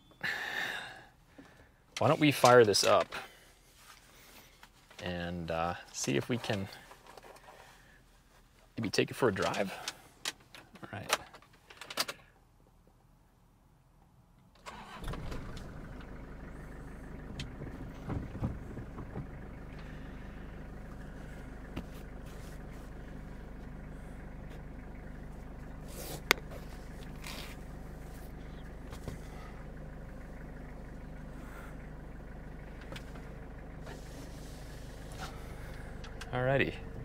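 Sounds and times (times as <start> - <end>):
diesel engine starting and idling: 14.6 - 37.0.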